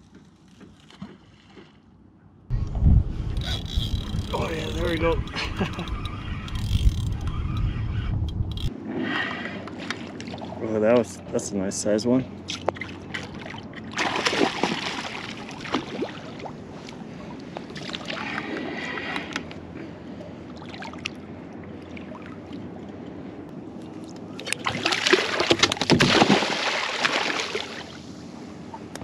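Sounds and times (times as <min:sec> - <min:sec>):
fish thrashing water splashing: 0:12.5 - 0:16.4, 0:24.4 - 0:27.9.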